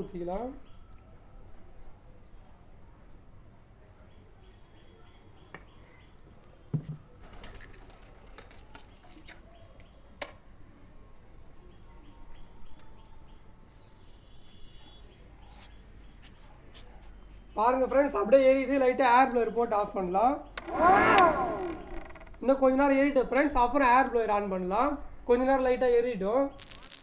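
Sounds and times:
small bird chirping: 26.5 - 27.0
sharp clicks: 26.6 - 27.0.

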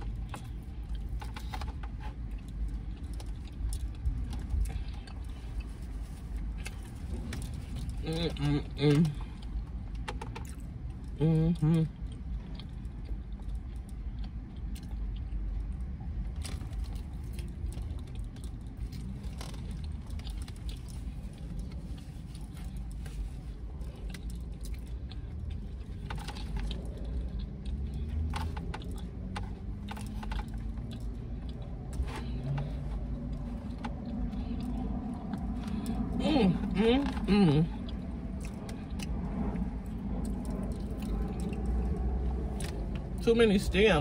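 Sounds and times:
chewing: 0.0 - 43.2
low rumble inside a car: 0.0 - 44.0.

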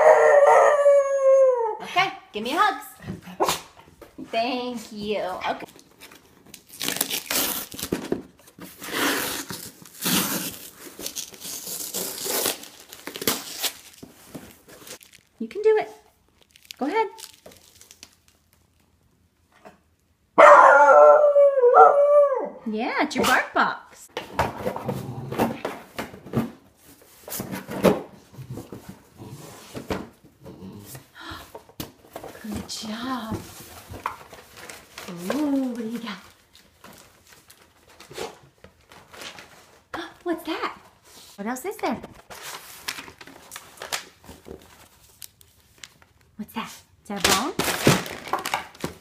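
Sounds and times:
cardboard box and tape tearing: 5.7 - 15.3, 47.3 - 49.0.

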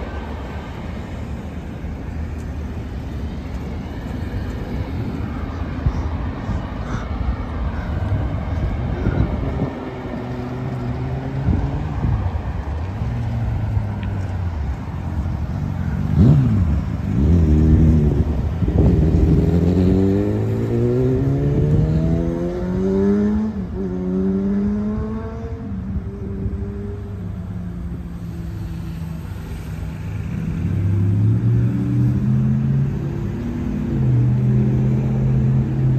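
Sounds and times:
vehicle engine accelerating: 8.2 - 35.9.

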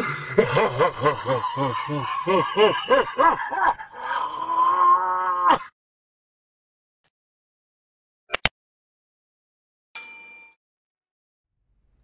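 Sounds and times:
man laughing like a pirate: 0.0 - 4.5.

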